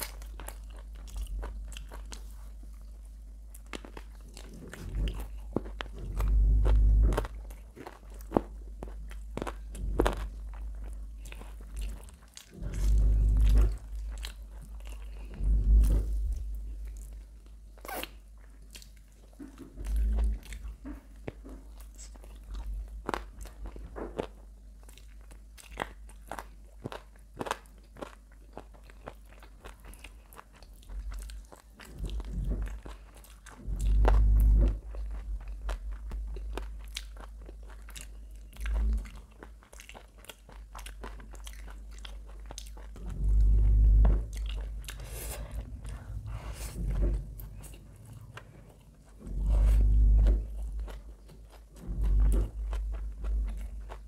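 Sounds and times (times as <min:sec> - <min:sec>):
crunchy chewing: 0:00.0 - 0:54.0
dull low thumps: 0:04.7 - 0:07.6, 0:09.6 - 0:17.2, 0:33.5 - 0:36.7, 0:42.9 - 0:54.0.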